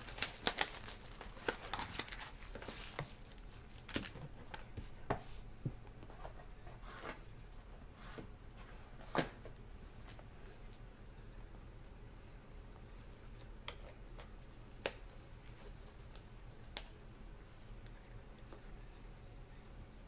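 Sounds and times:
plastic wrap tearing and crinkling: 0:00.0 - 0:04.2.

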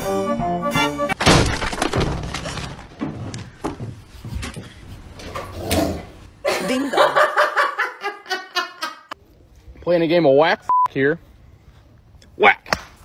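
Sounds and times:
knocks and bumps: 0:01.2 - 0:04.8.

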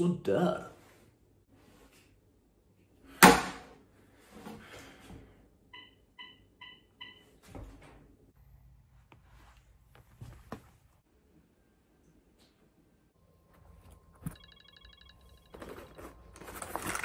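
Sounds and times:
phone button beeps: 0:14.3 - 0:15.5.

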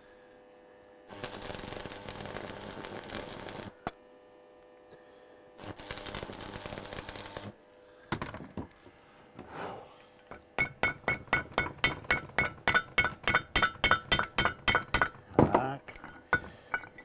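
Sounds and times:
hammer striking steel: 0:10.3 - 0:17.0.

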